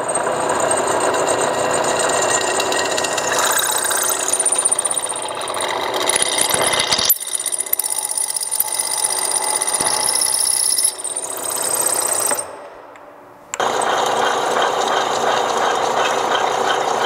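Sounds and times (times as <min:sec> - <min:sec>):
hole saw cutting metal: 0:00.0 - 0:12.7.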